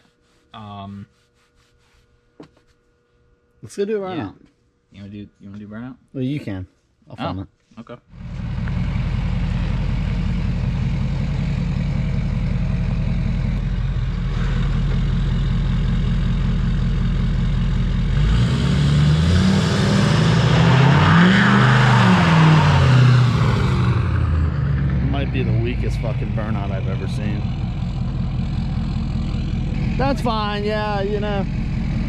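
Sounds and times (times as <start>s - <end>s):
diesel engine revving: 8.1s - 32.0s
spinning tyres hissing: 8.2s - 32.0s.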